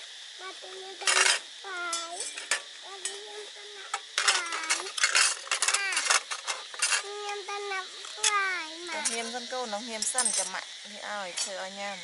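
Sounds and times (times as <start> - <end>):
metal spoon clinking on pot: 1.1 - 3.2, 10.0 - 10.6.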